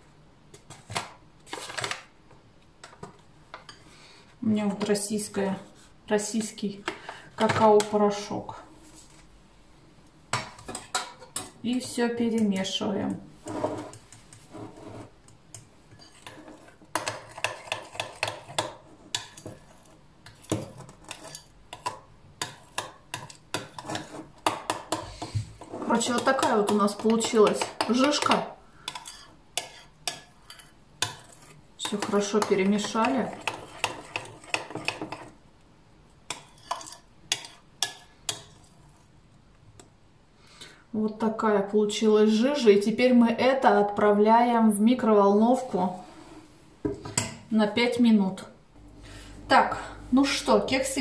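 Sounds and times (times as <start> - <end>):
spoon scraping batter: 13.4 - 35.4, 36.3 - 39.2.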